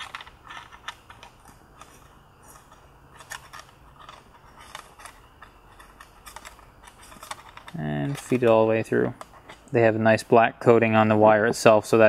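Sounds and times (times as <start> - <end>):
plastic clicks and rubbing: 0.0 - 9.8.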